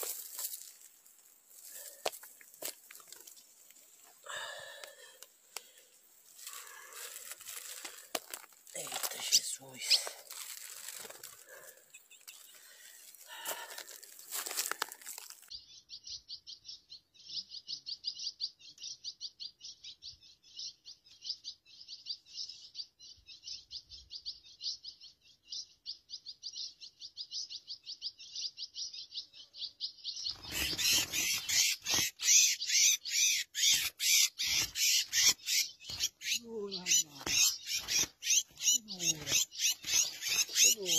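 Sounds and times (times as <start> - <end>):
rustling: 0.0 - 4.1, 6.2 - 15.5
songbird chirping: 0.0 - 40.9.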